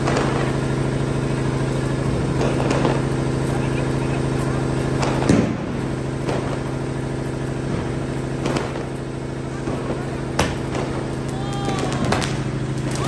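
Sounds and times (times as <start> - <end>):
engine idling: 0.0 - 13.0
firecrackers cracking: 0.0 - 13.0.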